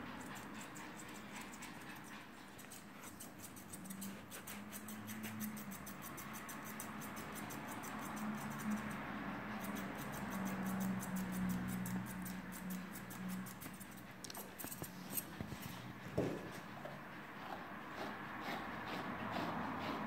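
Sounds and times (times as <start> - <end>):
scissors snipping hair: 0.0 - 15.3.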